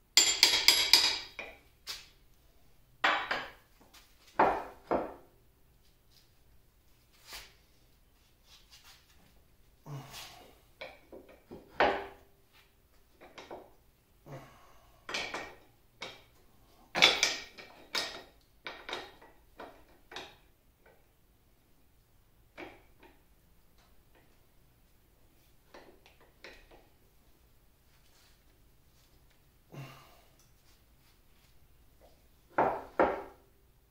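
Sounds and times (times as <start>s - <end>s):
metal parts clinking and knocking: 0.2s - 1.6s.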